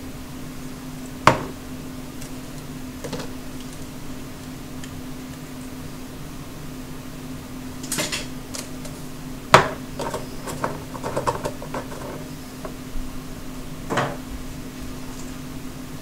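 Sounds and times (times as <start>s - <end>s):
steady low hum: 0.0s - 16.0s
kitchen utensils clattering: 7.9s - 8.3s, 10.0s - 12.3s.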